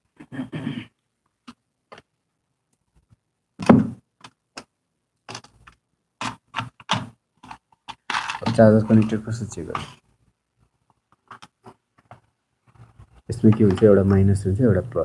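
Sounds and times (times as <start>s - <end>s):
small clicks and taps: 10.8s - 14.2s.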